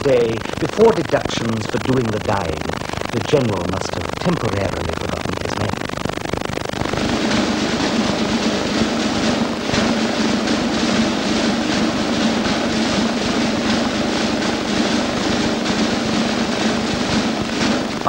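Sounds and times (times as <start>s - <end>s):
snare drum roll: 6.8s - 18.0s.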